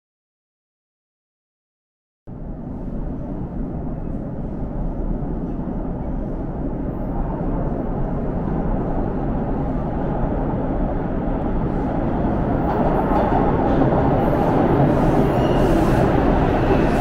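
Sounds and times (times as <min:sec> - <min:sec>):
subway train rumbling: 0:02.3 - 0:17.0.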